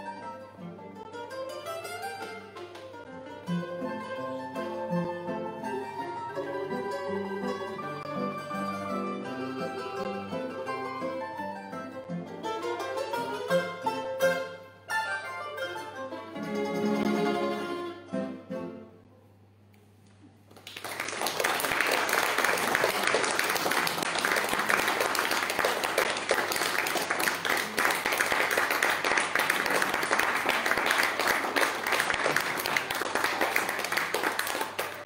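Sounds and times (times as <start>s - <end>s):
plucked-string quartet chords: 0.0s - 19.1s
audience applause: 20.5s - 35.0s.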